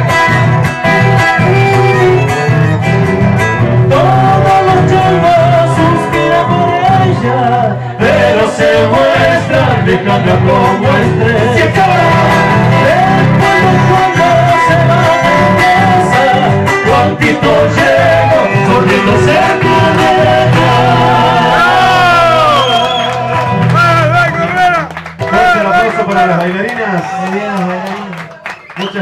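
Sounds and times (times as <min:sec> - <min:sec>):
accordion melody: 0:00.0 - 0:22.0
acoustic guitars: 0:00.0 - 0:29.0.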